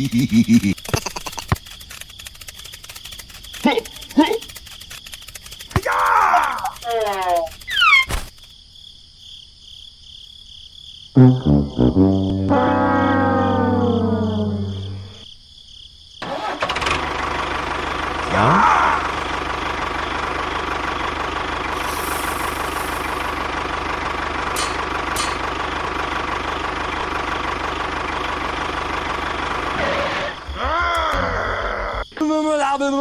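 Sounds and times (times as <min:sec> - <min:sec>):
brief rising tone: 0:11.2 - 0:15.2
falling brass music phrase: 0:11.2 - 0:15.2
tractor engine idling: 0:16.2 - 0:30.5.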